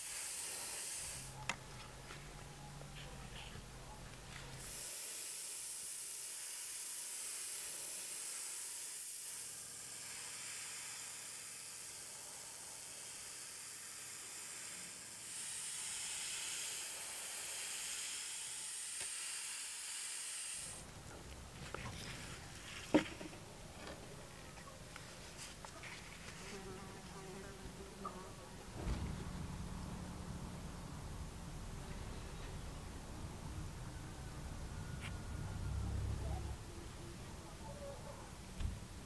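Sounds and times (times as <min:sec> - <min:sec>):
airbrush spraying hiss: 0:00.0 - 0:01.3, 0:04.6 - 0:19.3.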